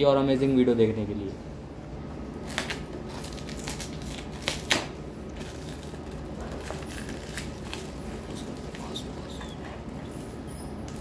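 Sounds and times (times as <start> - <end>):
plastic wrapping crinkling: 2.4 - 11.0.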